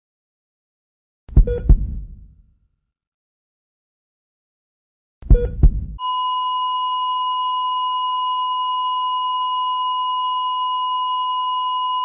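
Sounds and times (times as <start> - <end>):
heart monitor flatline tone: 1.4 - 2.1, 5.3 - 12.0.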